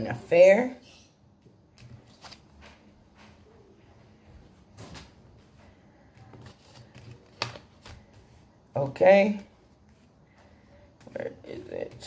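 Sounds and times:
cards sliding and tapping: 6.2 - 8.3.

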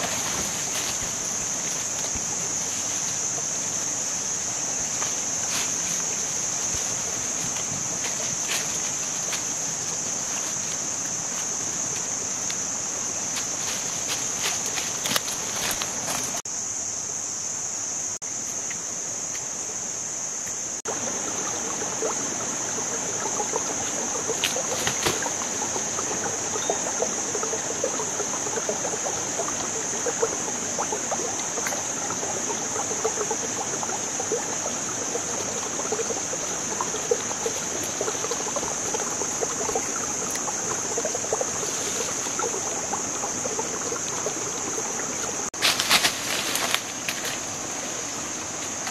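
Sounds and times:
footsteps crackling on dry leaves: 0.0 - 3.1, 13.3 - 16.4, 45.6 - 48.8
high-pitched insect drone: 0.0 - 48.9.

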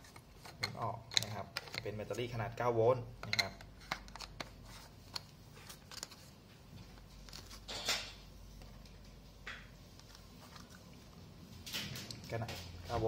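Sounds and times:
plastic clicks and handling: 0.1 - 2.1.

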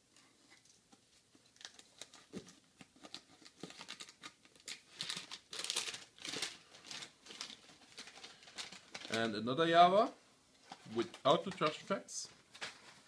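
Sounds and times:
packaging crinkling and tearing: 1.4 - 9.3.

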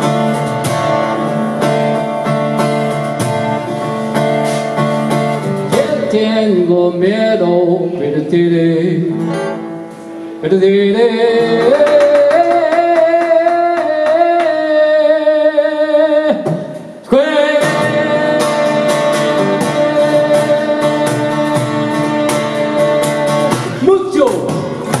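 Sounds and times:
strummed acoustic guitar: 0.0 - 25.0
man singing long notes: 5.6 - 9.2, 10.4 - 24.4.

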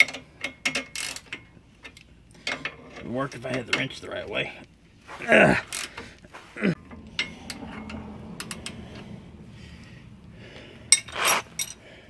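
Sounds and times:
metallic clicks of a wrench: 0.0 - 3.9.

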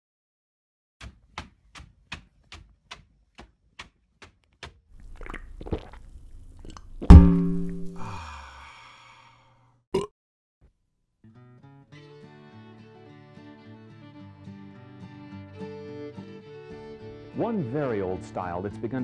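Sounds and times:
loud thump with low ringing: 7.0 - 8.0.

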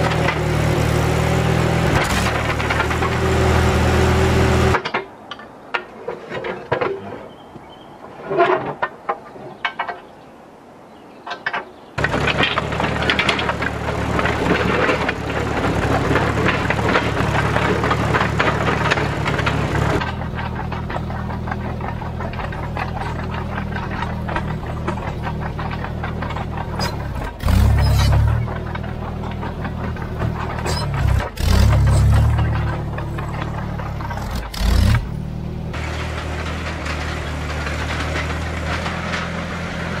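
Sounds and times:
dozer engine running: 0.0 - 5.0, 12.0 - 40.0
metal clanks of dozer blade: 12.0 - 35.2.

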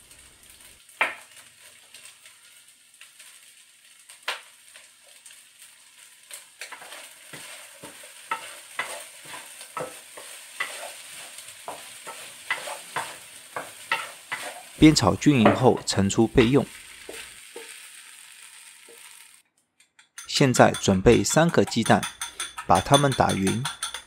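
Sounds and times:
faint sizzle: 0.0 - 19.5
spatula scraping a wok: 6.3 - 14.8, 15.4 - 19.4, 20.2 - 24.0.

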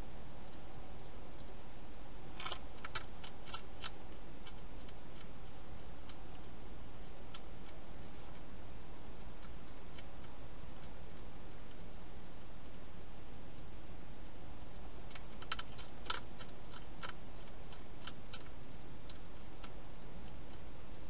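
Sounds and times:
steady hiss: 0.0 - 21.0
hedgehog crunching dry food: 2.3 - 12.8, 15.0 - 20.7.

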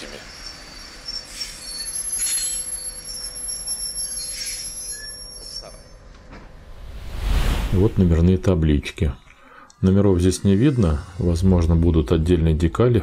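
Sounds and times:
train wheels squealing on rails: 0.0 - 6.1.

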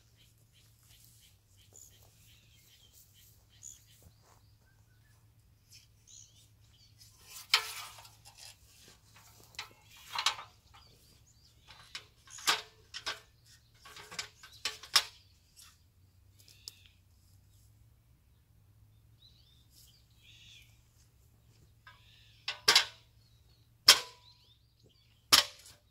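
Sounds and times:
footsteps through dry grass: 0.0 - 7.3
ladder knocking and rattling: 7.2 - 15.2.

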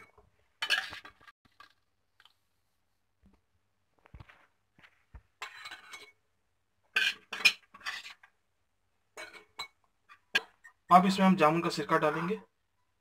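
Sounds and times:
kitchen utensil clatter: 0.0 - 1.3, 6.9 - 8.3, 9.2 - 10.8.

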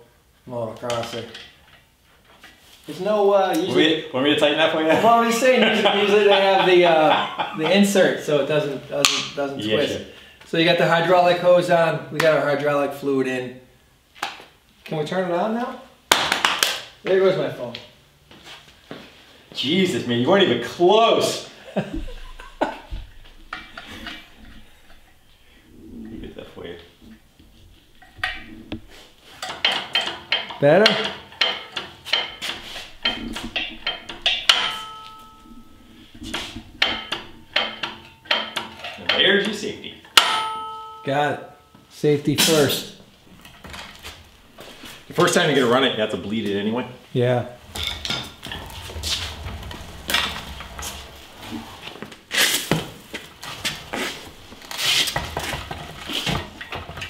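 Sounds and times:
metal clinking and rattling: 21.9 - 40.9, 43.0 - 46.4, 47.6 - 57.0
hand tools clanking on steel: 22.0 - 25.8, 27.9 - 41.0, 47.6 - 57.0
ringing metal clank: 29.4 - 39.2, 40.0 - 41.8, 47.6 - 52.0.

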